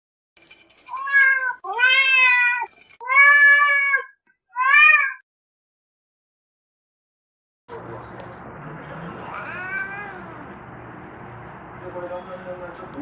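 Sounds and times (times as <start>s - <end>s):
cat meowing: 1.0s - 5.2s, 9.2s - 10.4s.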